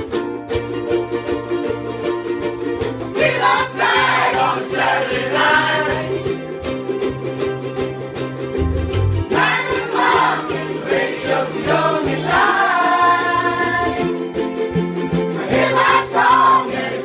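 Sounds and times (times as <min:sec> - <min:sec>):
ukuleles strumming chords: 0:00.0 - 0:17.0
group of voices singing: 0:03.2 - 0:06.4, 0:09.2 - 0:14.3, 0:15.3 - 0:17.0
low bass line: 0:08.5 - 0:09.5.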